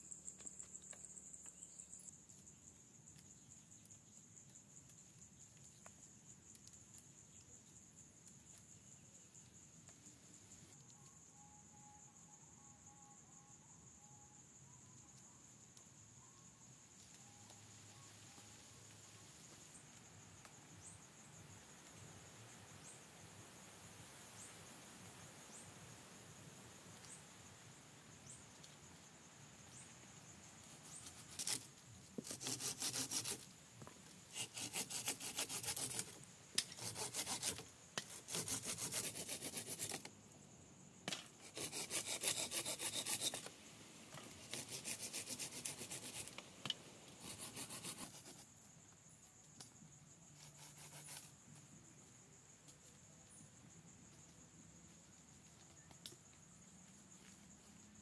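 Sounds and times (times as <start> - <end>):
hand tool rasping on wood: 32.3 - 33.4, 34.3 - 36.1, 36.8 - 40.0, 41.4 - 43.5, 44.5 - 46.3.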